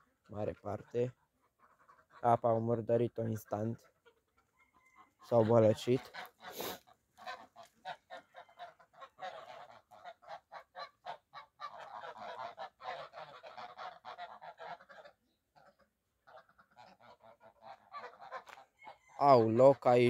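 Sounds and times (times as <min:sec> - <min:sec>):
geese honking: 0:00.0 - 0:20.0.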